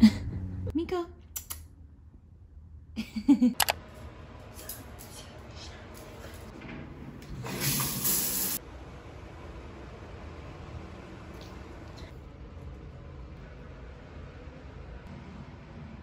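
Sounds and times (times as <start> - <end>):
sharp clicks: 1.3 - 1.7
shower water spraying: 7.4 - 8.6.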